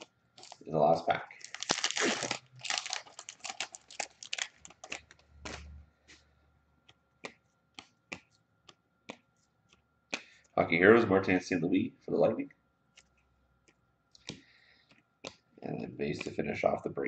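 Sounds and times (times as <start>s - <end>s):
card wrapper crinkling: 0.4s - 0.6s, 1.3s - 5.7s.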